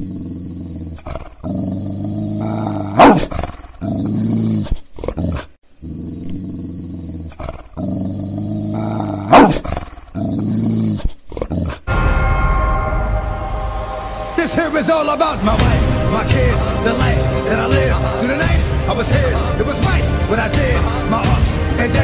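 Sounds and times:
dog growling: 0.0s - 11.9s
dog barking: 9.3s - 9.6s.

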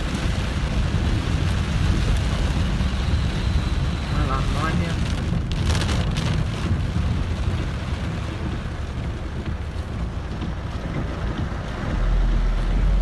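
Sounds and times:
car rumbling on wet road: 0.0s - 13.0s
heavy rain on car: 0.0s - 13.0s.

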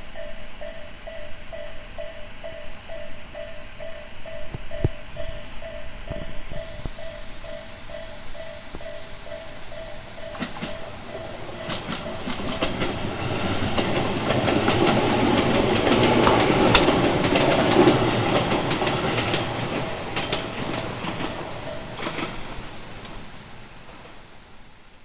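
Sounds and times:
train wheels clattering over rail joints: 5.2s - 23.2s.

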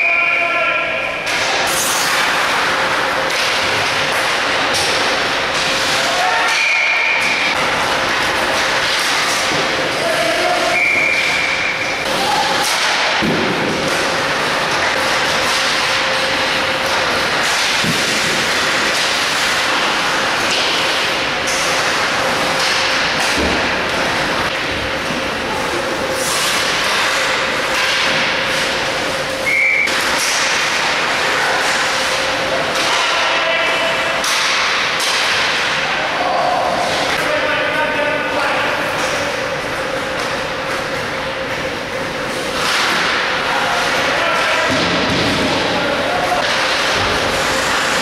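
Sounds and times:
skates scraping ice: 25.6s - 28.8s, 46.0s - 48.0s.

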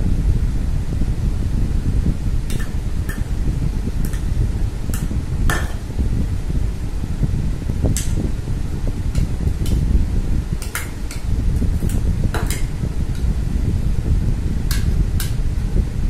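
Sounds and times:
steady low rumble: 0.0s - 16.0s
spoon clinking against bowl: 2.5s - 3.3s, 5.0s - 5.8s, 10.6s - 11.2s.

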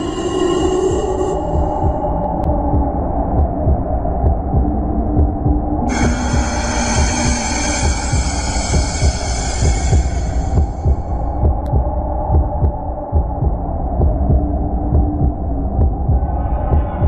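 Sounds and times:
low throbbing pulse: 0.0s - 17.0s
steady hum: 0.0s - 17.0s.

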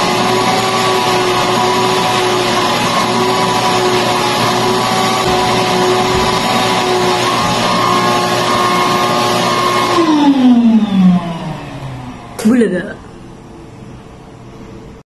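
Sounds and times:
vacuum cleaner motor whine: 0.0s - 12.5s.

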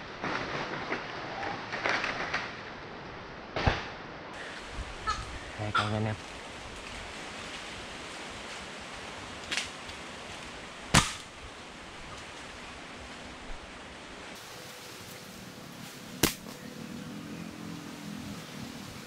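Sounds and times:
steady hiss: 0.0s - 19.0s
sharp cracks: 10.9s - 11.4s, 16.2s - 16.6s.

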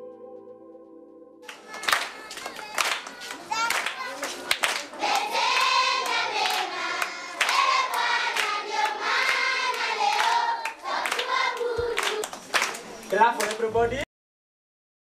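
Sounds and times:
children singing: 1.4s - 13.0s
hands clapping: 1.4s - 13.7s.

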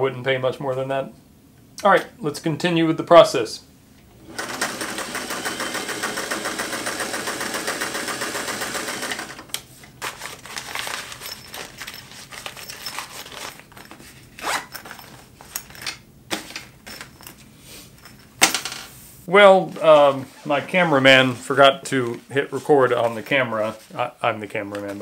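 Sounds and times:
sewing machine running: 4.2s - 9.5s.

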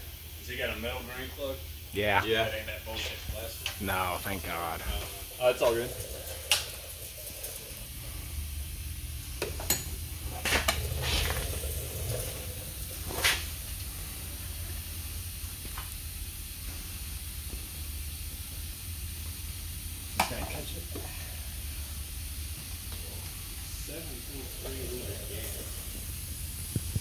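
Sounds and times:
steady low hum and hiss: 0.0s - 27.0s.

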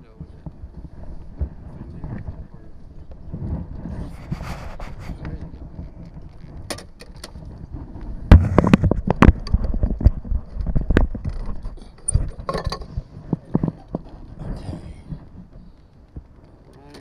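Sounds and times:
clothing rubbing on camera: 0.3s - 6.7s.

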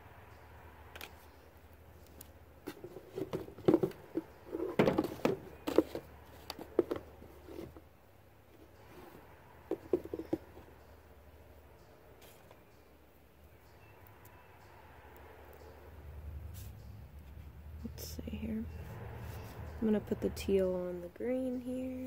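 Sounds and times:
paint pots clicking and tapping: 0.9s - 7.9s, 8.6s - 10.9s.

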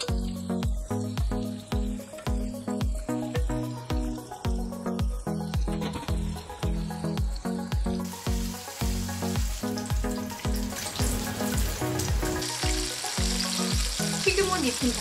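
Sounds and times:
background music with beat: 0.0s - 15.0s
food deep-frying in oil: 5.7s - 15.0s.

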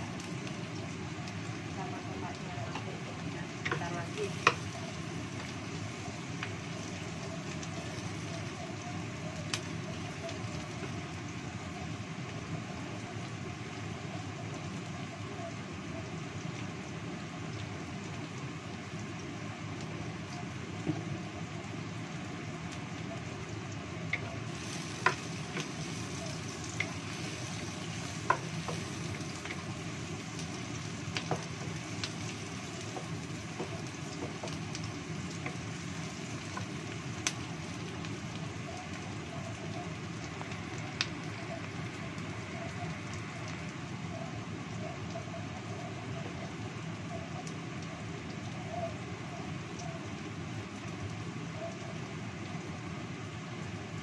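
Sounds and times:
food sizzling in hot oil: 0.0s - 54.0s
wooden spatula clicking on pan: 3.6s - 4.8s, 24.1s - 29.7s.

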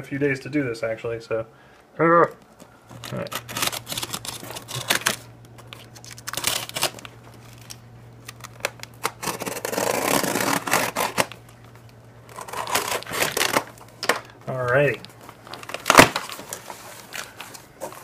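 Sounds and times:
steady low hum: 0.0s - 18.0s
scraping tape and cardboard: 2.9s - 11.4s, 12.3s - 13.7s.

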